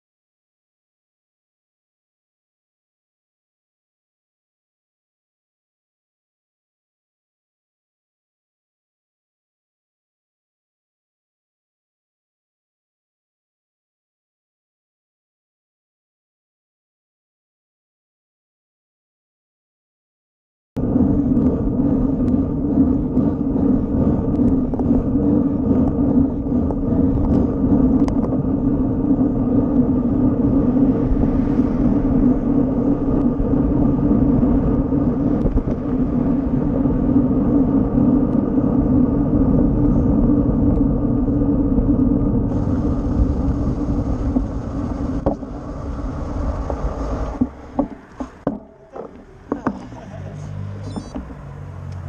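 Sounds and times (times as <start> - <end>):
bicycle tyre road noise: 20.8 - 52.0
wind rumble: 20.8 - 52.0.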